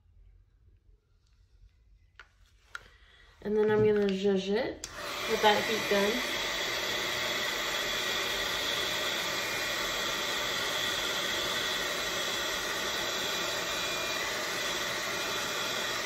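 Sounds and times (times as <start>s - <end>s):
heat gun blowing air: 4.8s - 16.0s.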